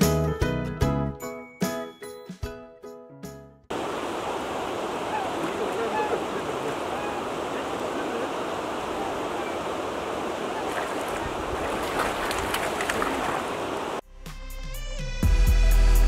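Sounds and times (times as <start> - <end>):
waves on water: 3.7 - 14.0
wind: 3.7 - 14.0.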